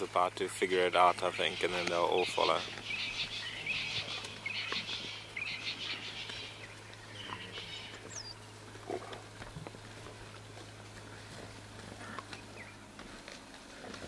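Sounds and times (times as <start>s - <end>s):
paws scrambling on loose soil: 0.0s - 14.0s
wild dogs twittering: 1.0s - 9.2s.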